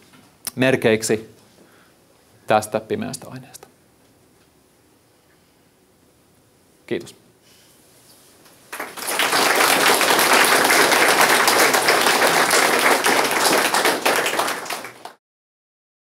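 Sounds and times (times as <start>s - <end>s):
audience clapping: 8.6s - 15.2s.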